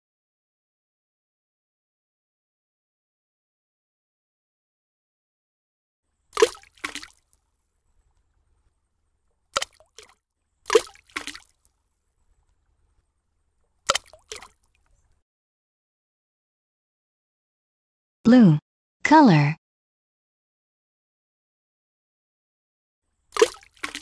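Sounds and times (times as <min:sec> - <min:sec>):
cartoon water drop plops: 0:06.4 - 0:07.2, 0:09.6 - 0:10.1, 0:10.7 - 0:11.5, 0:13.9 - 0:14.6, 0:23.4 - 0:24.0.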